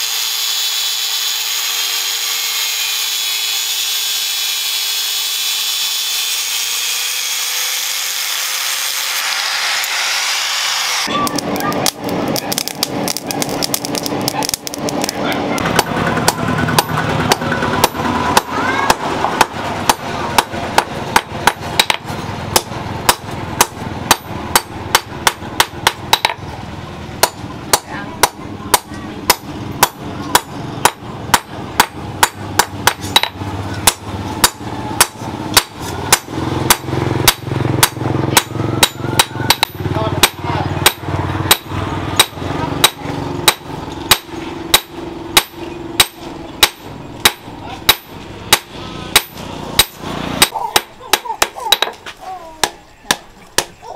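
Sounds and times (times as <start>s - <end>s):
hammer striking hot steel: 11.0s - 26.4s, 27.2s - 52.0s.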